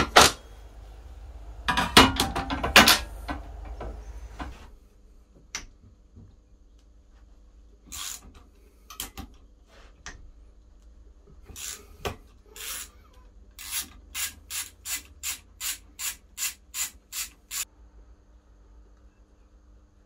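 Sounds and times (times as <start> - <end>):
socket ratchet clicking: 11.6 - 11.8, 13.6 - 17.6.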